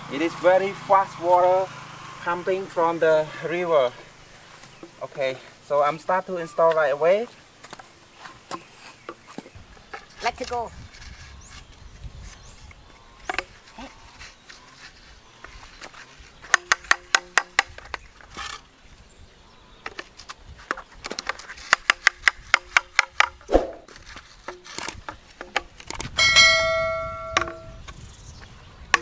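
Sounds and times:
hammer tapping plastic pipe fittings: 16.5s - 17.9s, 20.7s - 23.4s, 27.3s - 27.6s
bell chime sound effect: 26.2s - 27.7s.

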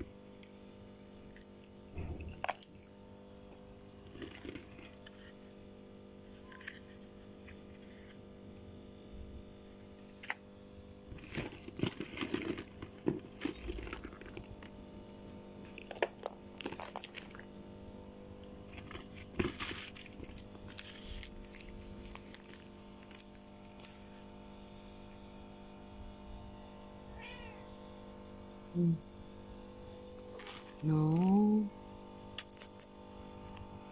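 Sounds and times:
faint steady hum: 0.0s - 33.9s
plastic bag crinkling: 18.7s - 23.7s, 30.2s - 31.4s.

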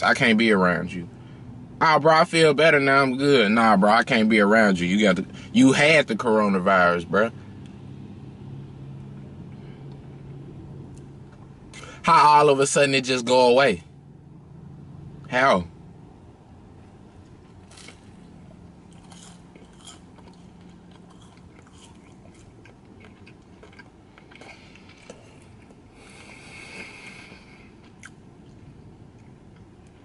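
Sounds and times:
quiet chewing: 17.2s - 30.0s.

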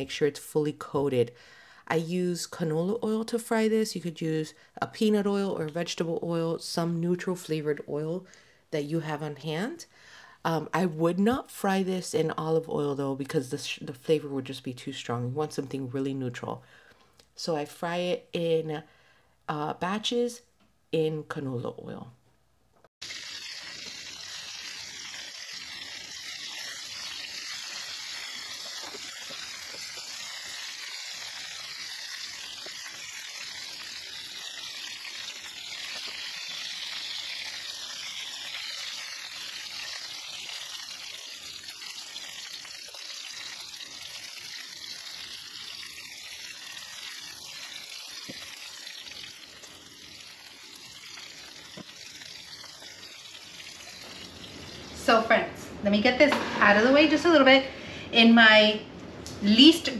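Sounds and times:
chicken sizzling in oil: 23.0s - 57.3s.

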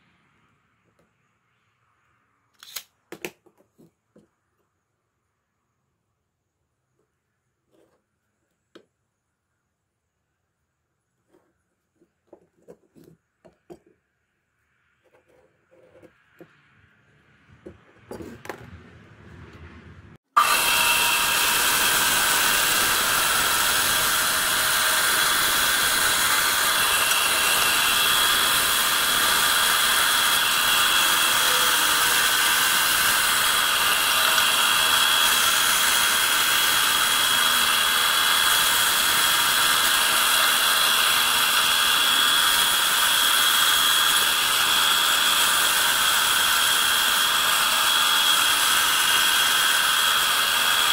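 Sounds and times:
band saw cutting wood: 20.2s - 50.9s.

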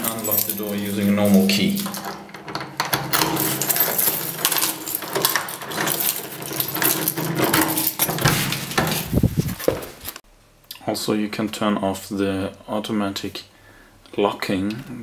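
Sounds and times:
key turning in lock: 0.0s - 9.2s
metal keys jingling: 0.0s - 10.2s.

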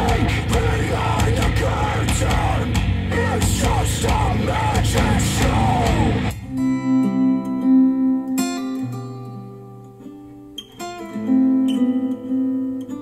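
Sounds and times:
rock song through speakers: 0.0s - 7.0s.

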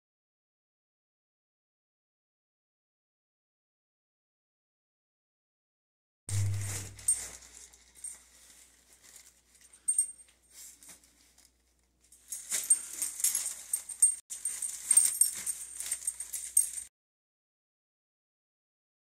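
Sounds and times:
plastic pack scraping on tile floor: 6.3s - 9.9s, 12.2s - 16.9s.

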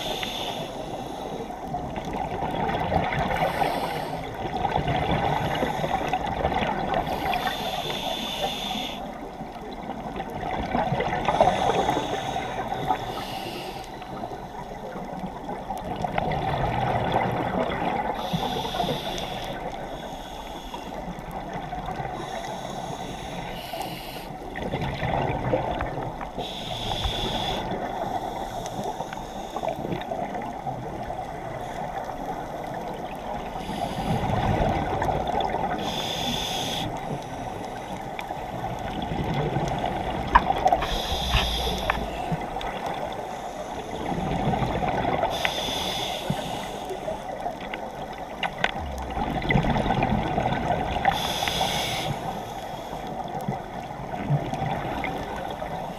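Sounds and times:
regulator inhalation hiss: 0.0s - 1.5s, 3.4s - 4.3s, 7.1s - 9.2s, 11.4s - 14.2s, 18.2s - 21.2s, 22.2s - 24.4s, 26.4s - 29.8s, 33.6s - 34.4s, 35.8s - 37.2s, 40.8s - 42.4s, 45.3s - 47.3s, 51.1s - 53.2s
exhaled bubbles gurgling: 1.3s - 20.2s, 23.9s - 29.0s, 29.6s - 52.4s, 53.0s - 55.9s.

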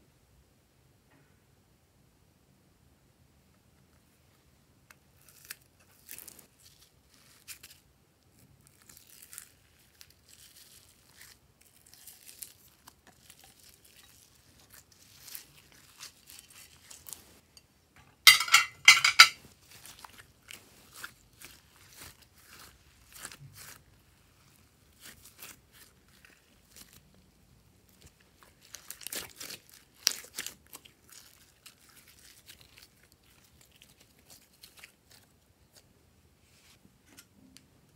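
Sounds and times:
slime clicking and crackling: 27.9s - 35.3s.

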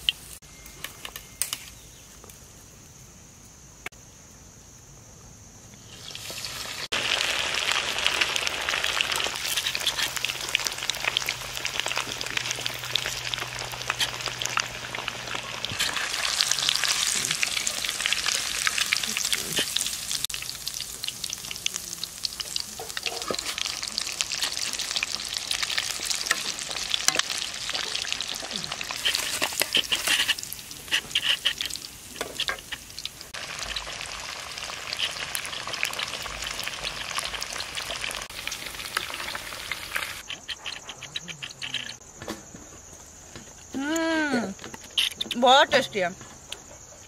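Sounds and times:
fish deep-frying in oil: 5.9s - 42.0s.

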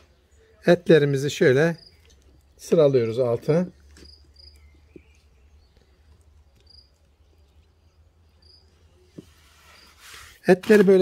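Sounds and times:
cricket chirping: 4.0s - 4.8s, 6.6s - 7.0s, 8.4s - 8.7s.

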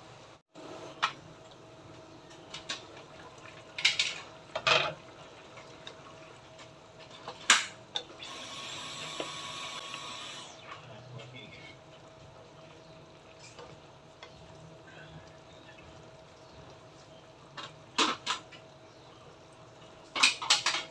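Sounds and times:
sauce simmering and bubbling: 1.1s - 7.9s, 11.2s - 20.0s.

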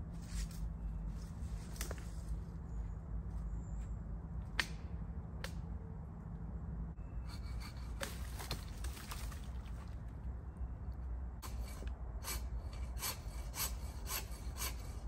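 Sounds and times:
twigs and branches cracking: 8.0s - 10.2s.

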